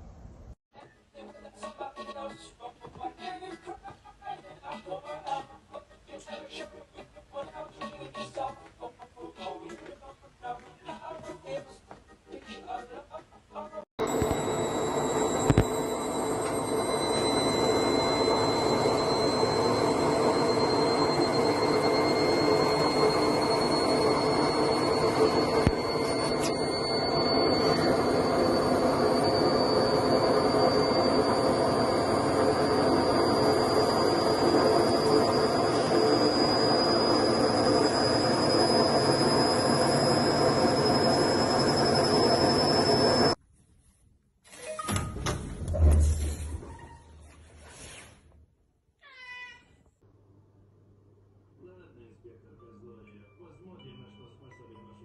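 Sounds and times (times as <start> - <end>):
washing machine whirring: 14.0 - 43.4.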